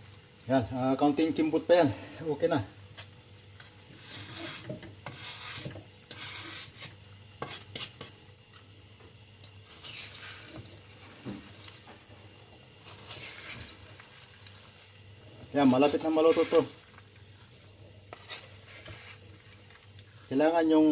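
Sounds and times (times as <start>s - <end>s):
nuts scraping in a metal pan: 3.9s - 8.1s, 9.7s - 10.7s, 12.8s - 14.8s, 15.6s - 20.9s.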